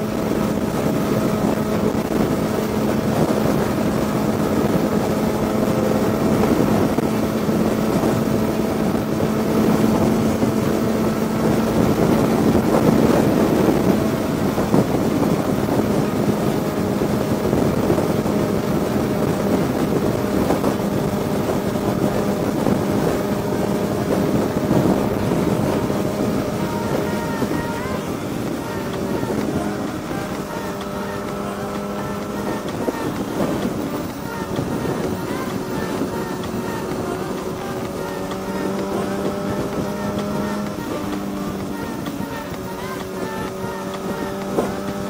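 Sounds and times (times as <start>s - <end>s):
motorcycle engine cruising: 0.0s - 45.0s
wind rushing over microphone: 0.0s - 45.0s.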